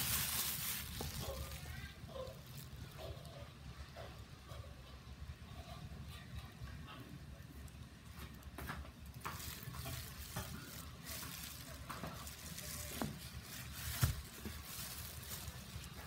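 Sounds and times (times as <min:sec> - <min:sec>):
plastic wrapping crinkling: 0:00.0 - 0:03.1, 0:08.3 - 0:16.0.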